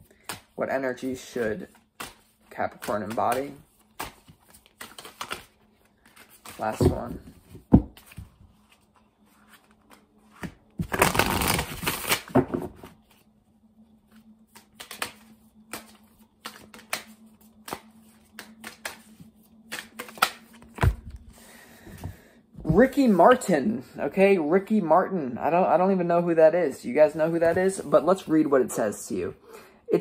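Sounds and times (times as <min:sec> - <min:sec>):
cards being shuffled: 0:00.1 - 0:13.3, 0:14.1 - 0:21.3
cards tapping and clicking: 0:01.9 - 0:07.2, 0:14.5 - 0:21.0.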